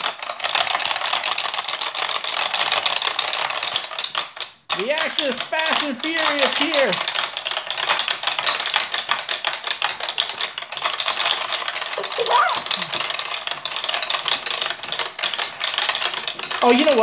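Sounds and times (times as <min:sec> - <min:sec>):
short vocal sound: 0:12.0 - 0:13.0.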